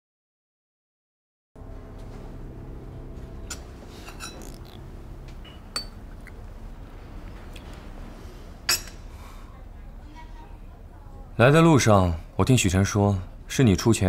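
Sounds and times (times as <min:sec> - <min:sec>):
low steady hum: 0:01.6 - 0:14.0
coffee cups clinking on saucers: 0:03.5 - 0:04.8, 0:05.4 - 0:06.3.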